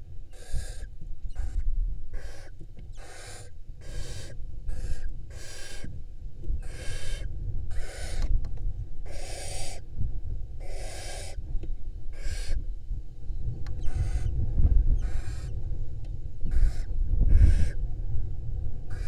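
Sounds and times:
steady low rumble: 0.0s - 19.0s
barn owls rasping hisses: 9.1s - 9.8s, 10.6s - 11.4s.

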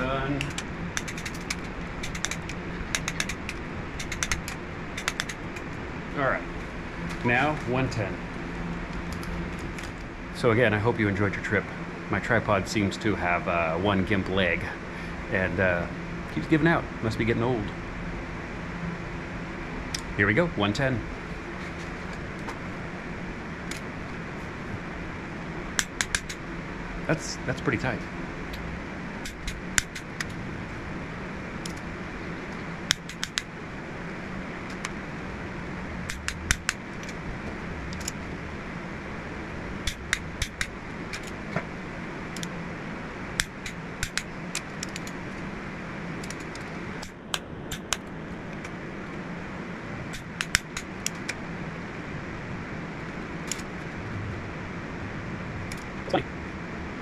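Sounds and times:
steady hum: 0.0s - 57.0s
torque wrench clicks: 0.4s - 5.7s, 25.8s - 26.4s, 32.9s - 33.4s, 43.4s - 45.2s.

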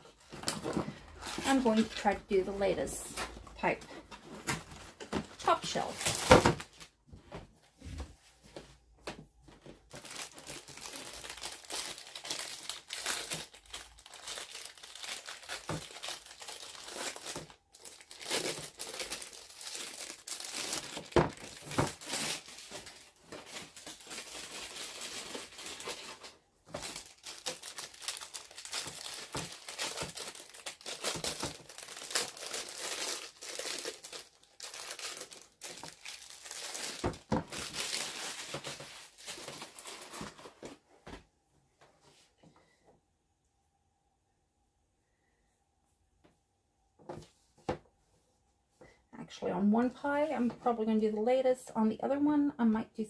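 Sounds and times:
plastic wrapper crinkling and tearing: 2.8s - 7.0s, 9.7s - 40.8s.

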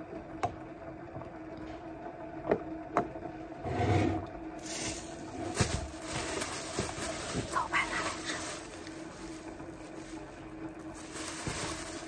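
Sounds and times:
steady low hum: 0.0s - 12.0s
plastic bag crinkling: 4.6s - 12.0s.

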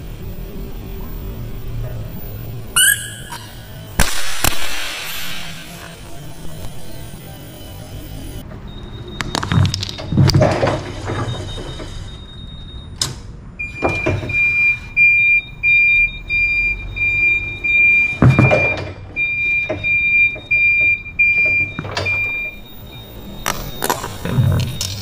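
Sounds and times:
forklift warning beeper: 2.6s - 4.0s, 5.1s - 9.4s, 13.6s - 25.0s.

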